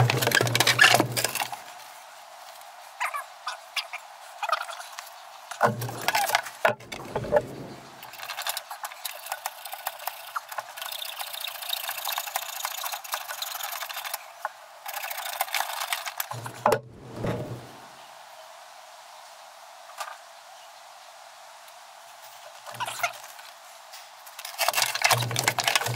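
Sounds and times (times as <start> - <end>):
plastic fittings clicking and rattling: 8.0 - 14.2, 14.8 - 16.8, 24.4 - 25.9.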